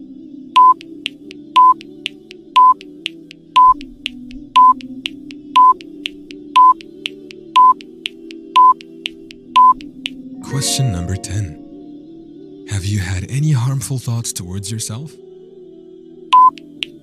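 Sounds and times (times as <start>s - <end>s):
soft background music: 0.0s - 17.0s
short high beeps: 6.6s - 6.8s, 7.6s - 7.8s, 8.6s - 8.8s.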